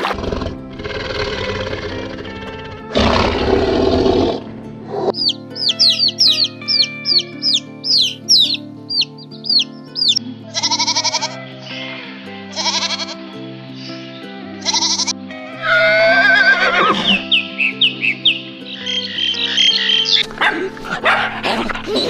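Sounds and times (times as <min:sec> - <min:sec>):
tiger roaring: 0:00.0 - 0:05.2
background music: 0:00.0 - 0:22.0
baby chicks peeping: 0:05.0 - 0:11.4, 0:17.2 - 0:20.6
goat bleating: 0:10.5 - 0:13.3, 0:14.6 - 0:17.3.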